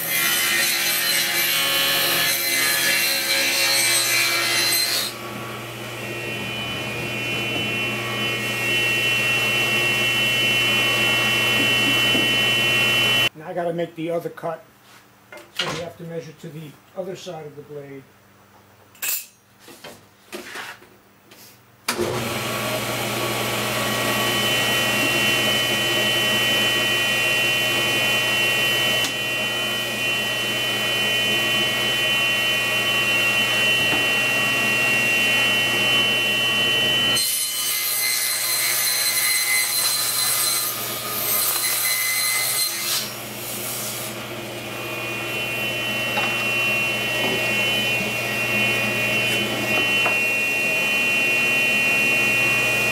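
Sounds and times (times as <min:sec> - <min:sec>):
saw blade cutting plywood: 0:00.0 - 0:05.2, 0:05.8 - 0:13.3, 0:24.1 - 0:51.3
table saw running: 0:00.0 - 0:13.3, 0:21.9 - 0:52.9.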